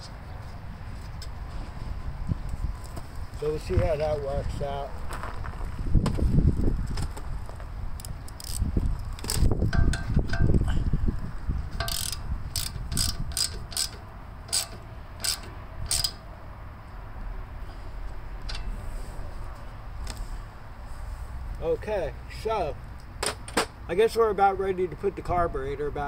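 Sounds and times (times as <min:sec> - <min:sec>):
ratcheting wrench clicking: 0:08.0 - 0:10.6, 0:11.8 - 0:16.2.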